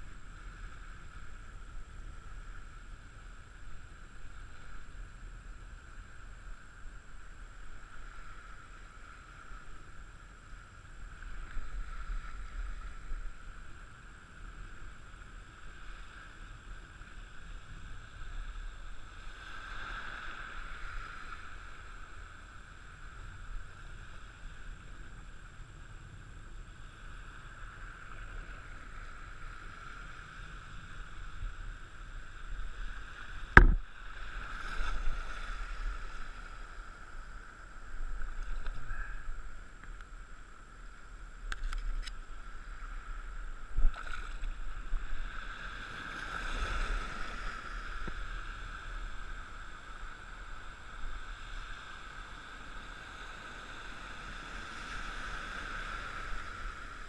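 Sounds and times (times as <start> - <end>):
water swishing and lapping: 0.0 - 57.0
boat motor hum: 21.6 - 34.5
sharp knock: 33.6 - 33.8.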